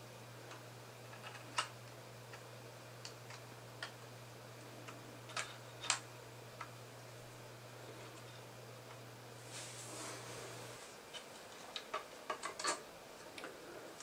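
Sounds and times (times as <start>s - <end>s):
steady low hum: 0.0s - 14.0s
plastic parts clicking: 5.3s - 6.0s, 11.1s - 12.8s.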